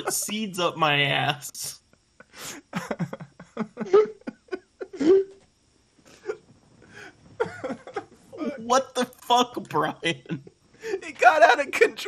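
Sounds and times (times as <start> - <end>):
man laughing: 0.0 - 0.7, 1.6 - 5.4, 7.4 - 8.9.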